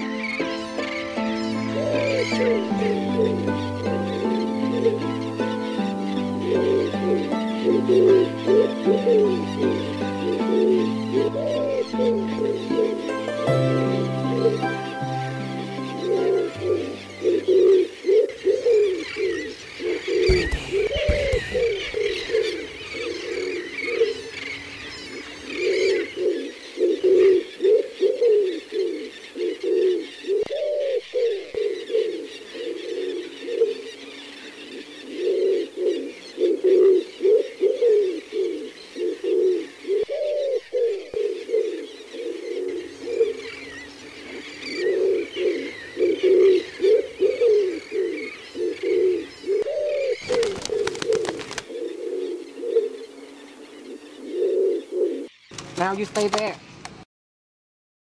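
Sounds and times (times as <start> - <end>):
pigeons cooing: 0.0 - 55.5
faint small birds chirping: 15.7 - 56.8.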